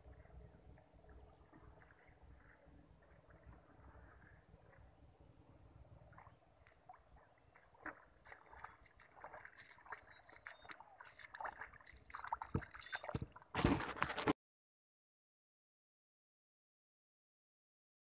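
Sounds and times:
footsteps splashing through mud: 6.2 - 14.3
handling rustle: 12.8 - 14.3.

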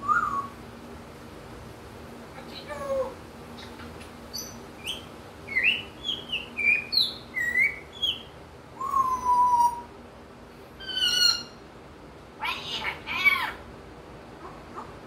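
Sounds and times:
parrot chirping and whistling: 0.0 - 0.6, 4.3 - 9.9, 10.8 - 11.6.

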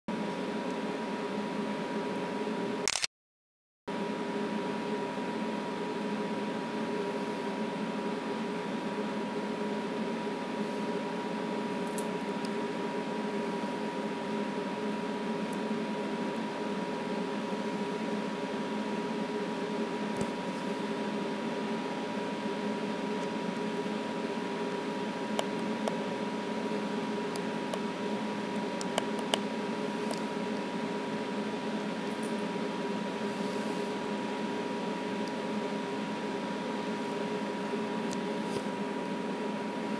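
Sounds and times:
short clicks: 2.8 - 3.1
background hum and hiss: 3.9 - 39.9.

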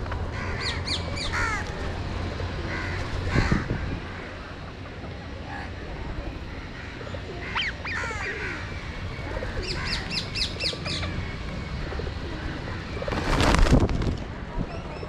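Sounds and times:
birds calling: 0.0 - 15.0
pigeon wings flapping: 13.0 - 14.3.

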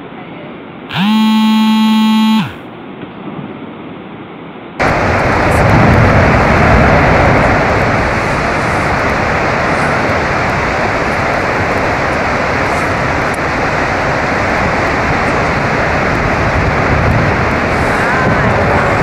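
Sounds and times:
loud horn-like tone: 0.9 - 2.6.

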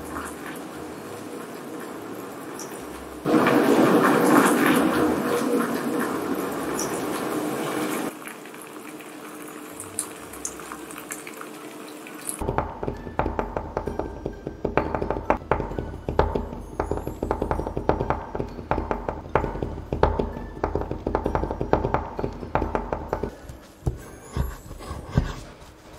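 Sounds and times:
rapid irregular clicking and knocking: 12.4 - 25.4.

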